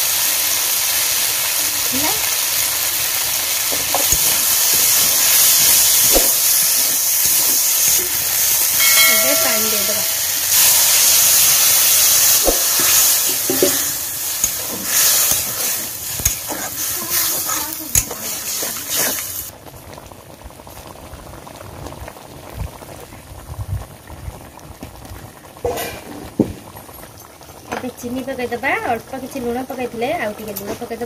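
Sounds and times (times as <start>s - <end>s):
food sizzling in a hot pan: 0.0s - 23.1s, 25.4s - 31.0s
curry bubbling: 0.6s - 31.0s
metal spatula scraping and knocking: 12.3s - 19.2s.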